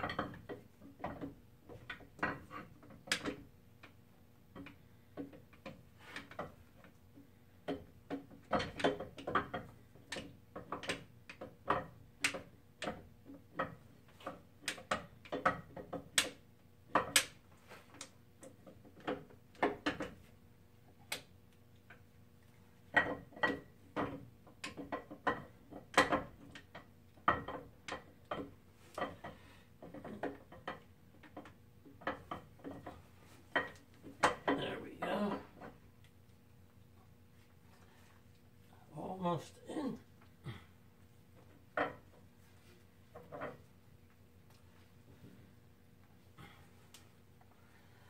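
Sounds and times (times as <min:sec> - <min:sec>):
metallic clicks and clunks: 0:00.0 - 0:22.1, 0:22.8 - 0:36.2.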